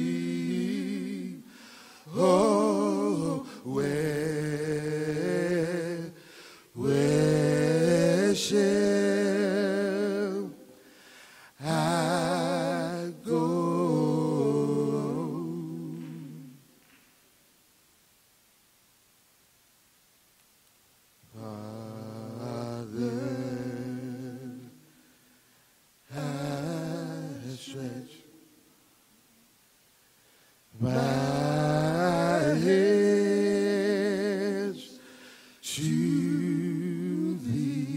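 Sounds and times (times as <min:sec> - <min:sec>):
men singing a cappella: 0:00.0 - 0:10.9, 0:11.5 - 0:16.7, 0:21.3 - 0:25.1, 0:26.1 - 0:28.6, 0:30.7 - 0:37.9.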